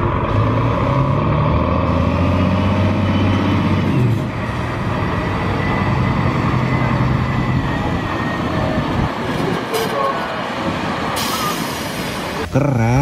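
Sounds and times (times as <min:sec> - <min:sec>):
truck engine running: 0:00.0 - 0:09.7.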